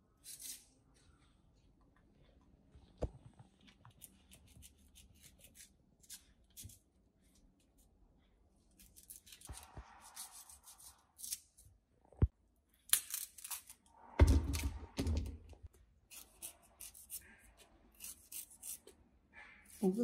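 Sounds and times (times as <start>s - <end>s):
knife scraping and cutting: 0.2s - 0.7s, 3.9s - 6.8s, 8.8s - 11.6s, 16.1s - 20.0s.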